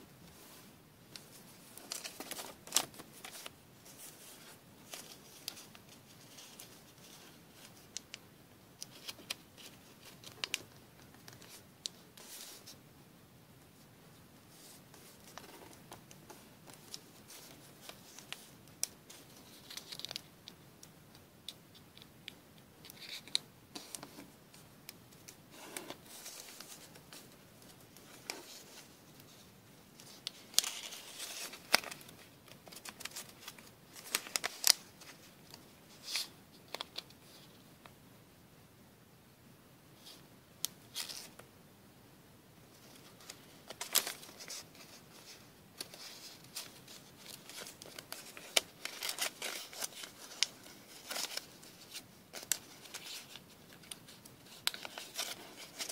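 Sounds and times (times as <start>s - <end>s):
paper folding and creasing: 1.1s - 8.1s, 14.5s - 20.6s, 22.8s - 37.5s, 42.8s - 55.9s.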